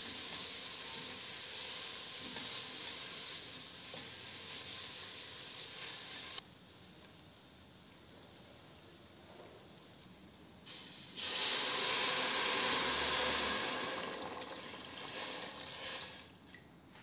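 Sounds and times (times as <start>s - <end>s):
broth pouring into a pot: 10.7s - 16.4s.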